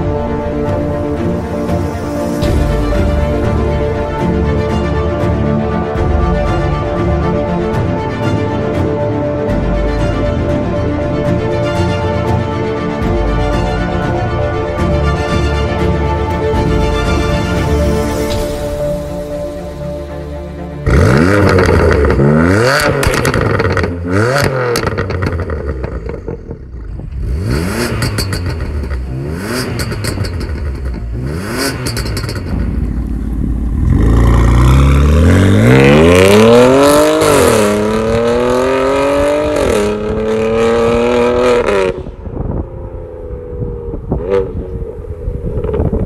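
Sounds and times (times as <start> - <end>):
exhaust crackling and popping: 20.8 - 36.5
car engine revving: 20.8 - 42.4.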